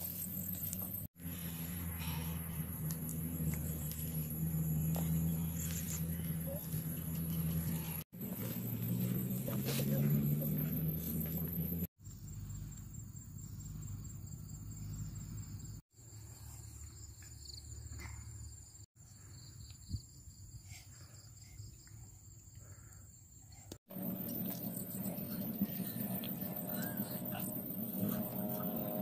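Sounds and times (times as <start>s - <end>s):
insects chirring: 12.0s - 29.0s.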